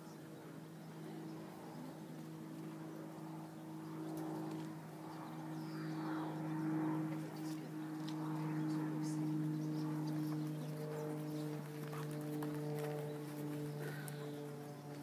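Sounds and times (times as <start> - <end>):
low mechanical hum: 0.0 - 15.0
horse trotting on sand: 9.9 - 15.0.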